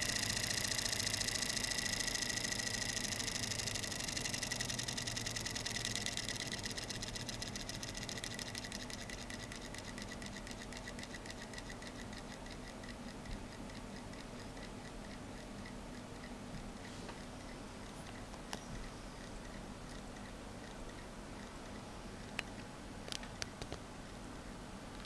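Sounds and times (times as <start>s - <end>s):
toy steam engine puffing: 0.0s - 9.5s.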